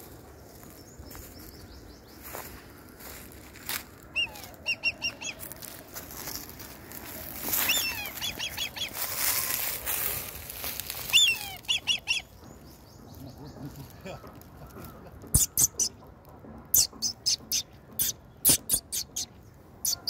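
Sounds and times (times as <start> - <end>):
rustling noise: 2.2 - 12.8
kite whistled calls: 4.2 - 5.5, 7.5 - 9.4, 11.1 - 12.3, 16.8 - 20.0.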